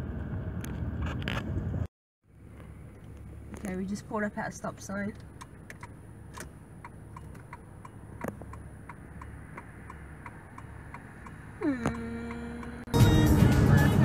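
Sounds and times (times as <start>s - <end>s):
idling engine hum: 0.0s - 14.0s
turn signal clicking: 4.7s - 12.9s.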